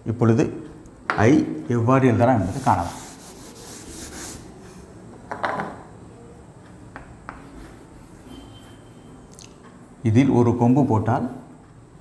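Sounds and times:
chalk scratching on blackboard: 0:02.4 - 0:04.8, 0:07.3 - 0:09.1
duster rubbing chalkboard: 0:02.4 - 0:04.8, 0:07.3 - 0:08.8.

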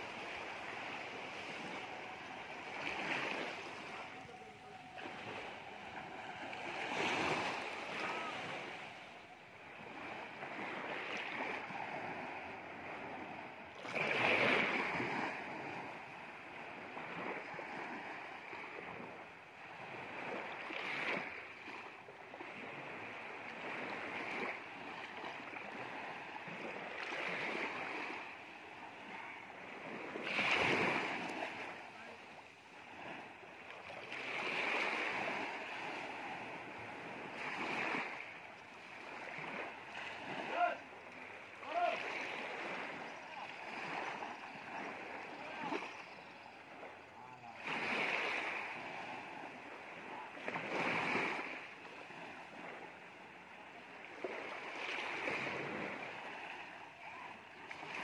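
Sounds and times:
small waves washing on beach: 0:00.0 - 0:58.0.

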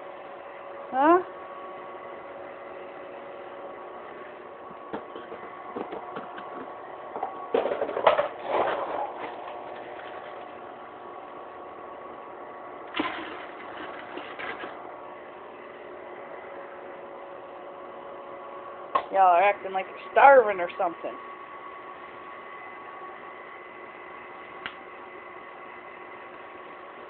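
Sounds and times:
steady mechanical hum: 0:00.0 - 0:27.0
clattering and handling noise: 0:04.6 - 0:10.6, 0:12.9 - 0:14.8.

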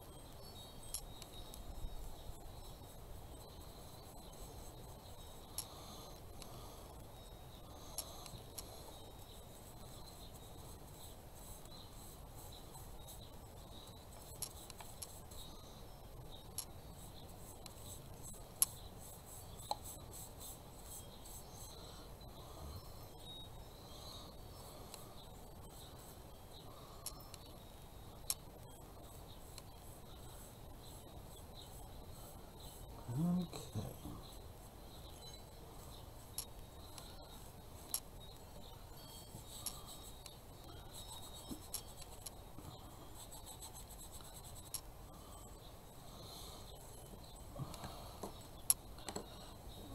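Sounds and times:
low steady hum: 0:00.0 - 0:49.9
short voice sound: 0:33.1 - 0:34.2
light clicks and taps: 0:47.1 - 0:49.5.

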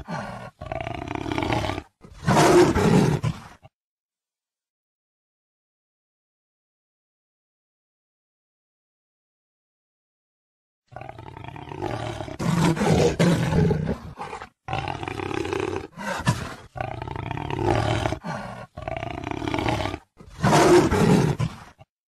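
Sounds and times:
big cat snarling and roaring: 0:00.0 - 0:03.7, 0:10.9 - 0:21.9.

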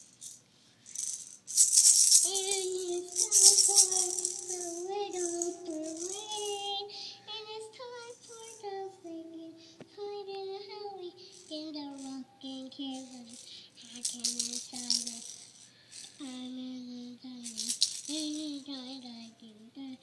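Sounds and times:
toy maraca shaking: 0:00.0 - 0:07.1, 0:07.8 - 0:08.9, 0:10.7 - 0:16.7, 0:17.3 - 0:19.3
girl singing vocal runs: 0:02.0 - 0:15.4, 0:16.1 - 0:20.0.

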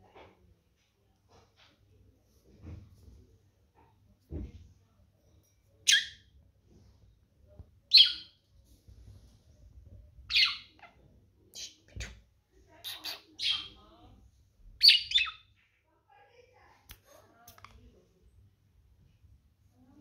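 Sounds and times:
soft thump: 0:04.2 - 0:04.7
budgerigar chirping: 0:07.9 - 0:08.3, 0:10.3 - 0:10.7, 0:12.8 - 0:13.8, 0:14.8 - 0:15.4.

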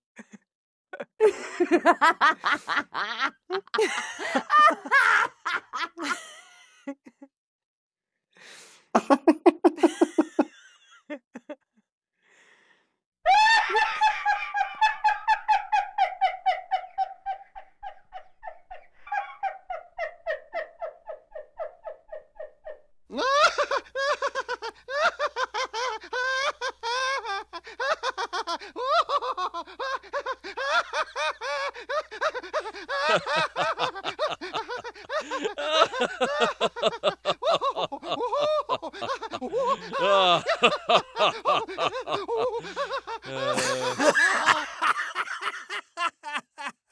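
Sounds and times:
person laughing: 0:01.0 - 0:07.3, 0:09.0 - 0:11.6, 0:23.1 - 0:46.9.

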